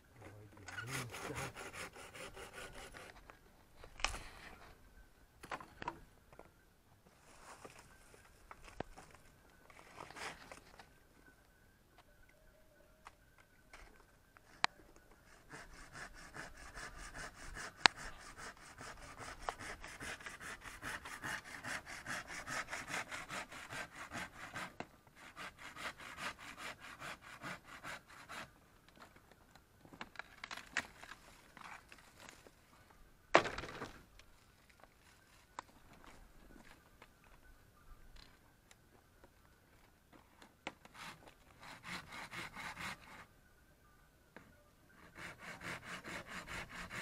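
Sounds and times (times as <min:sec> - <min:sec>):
rasping strokes on wood: 0:00.7 - 0:03.2, 0:15.3 - 0:28.5, 0:40.9 - 0:43.2, 0:45.0 - 0:47.0.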